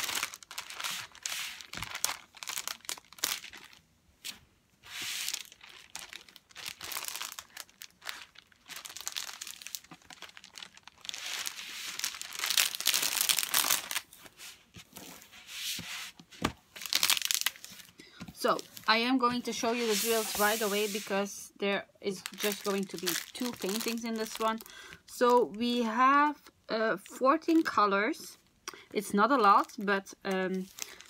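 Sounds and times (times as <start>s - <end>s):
plastic film crinkling: 0.0s - 15.3s, 16.7s - 21.1s, 22.1s - 25.6s, 29.4s - 31.0s.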